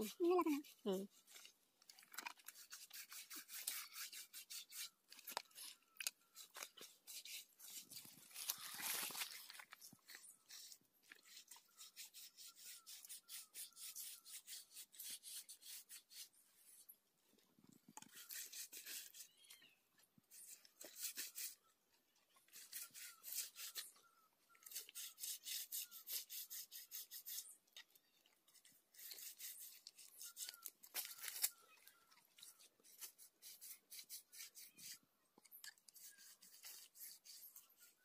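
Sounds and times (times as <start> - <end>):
paintbrush scrubbing concrete: 0.0 - 1.2, 2.5 - 5.7, 6.4 - 16.3, 18.1 - 19.3, 20.3 - 21.6, 22.5 - 24.0, 24.6 - 27.9, 28.5 - 31.5, 32.5 - 35.0, 35.8 - 38.0.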